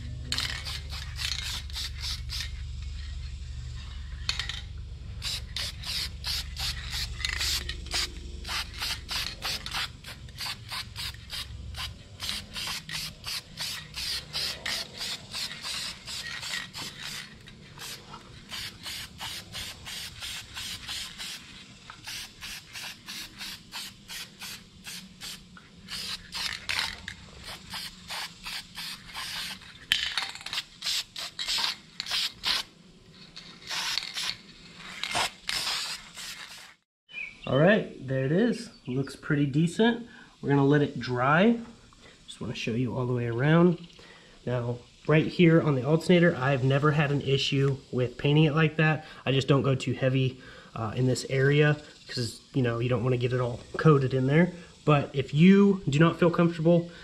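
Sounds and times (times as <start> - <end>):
aerosol can spraying hiss: 0.4 - 2.8, 5.2 - 32.7, 33.5 - 36.8.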